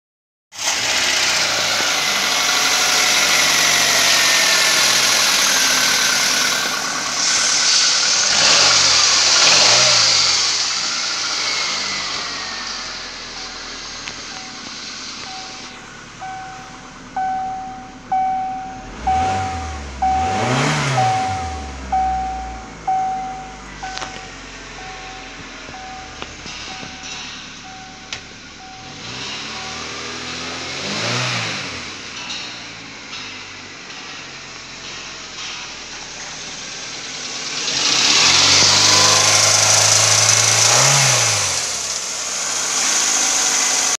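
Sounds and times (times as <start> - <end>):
car engine revving: 0.5 - 44.0
dashboard warning chime beeping: 13.3 - 30.6.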